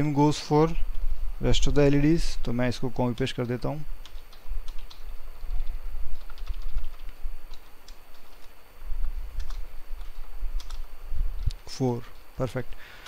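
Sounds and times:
keyboard key clicks: 9.4 - 11.6.

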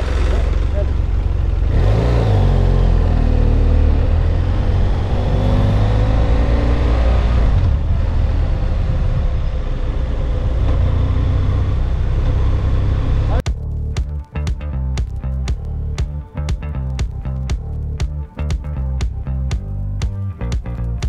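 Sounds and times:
motorcycle engine pulling away: 0.0 - 13.4.

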